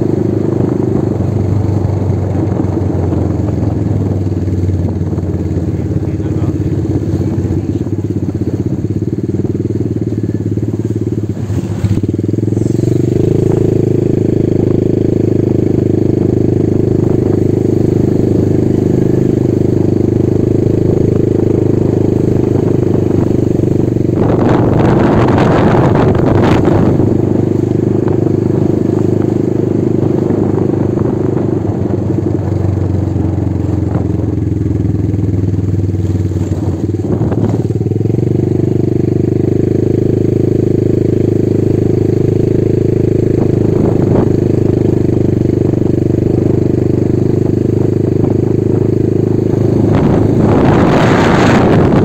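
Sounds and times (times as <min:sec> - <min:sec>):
motorcycle engine running: 0:00.0 - 0:52.0
loud rushing noise: 0:49.6 - 0:52.0.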